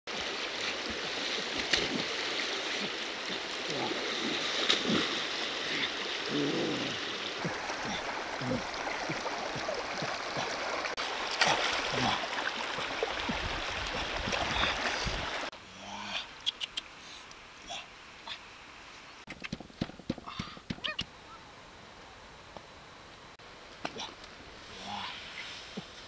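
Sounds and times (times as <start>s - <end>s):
river water rushing over stones: 0.1s - 15.5s
water splashing and sloshing: 0.1s - 15.5s.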